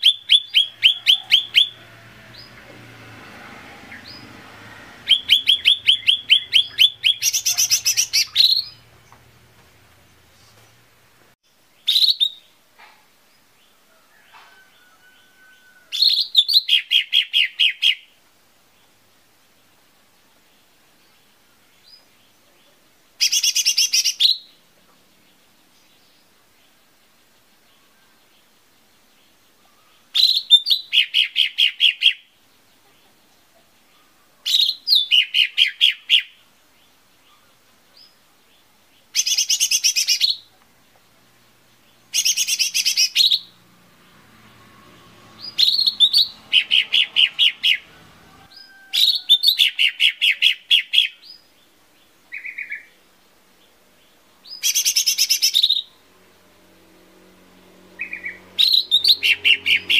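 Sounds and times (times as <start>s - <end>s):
bird chirping rapidly: 0.0s - 11.1s, 11.8s - 12.6s, 15.2s - 18.2s, 23.2s - 24.6s, 29.8s - 32.3s, 34.0s - 38.2s, 39.0s - 40.6s, 41.8s - 53.0s, 54.1s - 56.0s, 57.6s - 59.9s.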